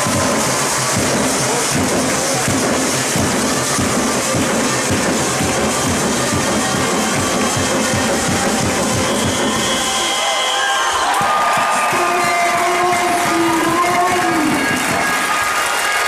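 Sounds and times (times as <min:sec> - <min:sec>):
music with steady beat: 0:00.0 - 0:10.2.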